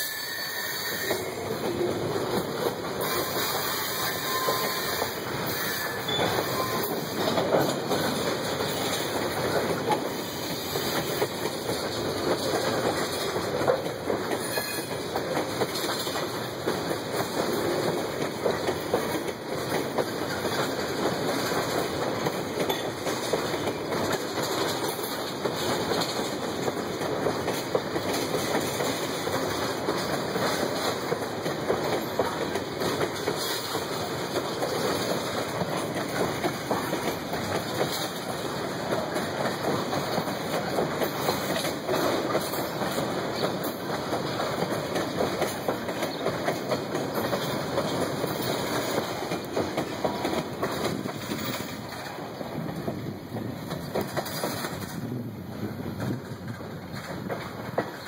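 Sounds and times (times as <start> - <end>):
freight train wheels rumbling on rails: 0.0 - 58.0.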